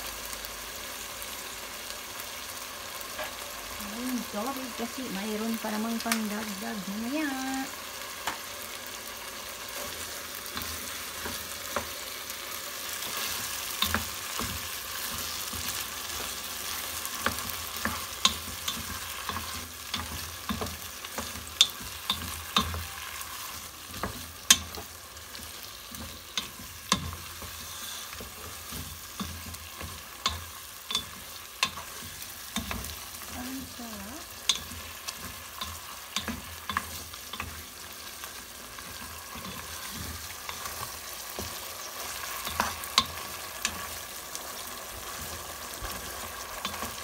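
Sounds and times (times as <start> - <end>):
chicken sizzling in a pot: 0.0 - 47.0
spatula scraping a pot: 12.9 - 33.0.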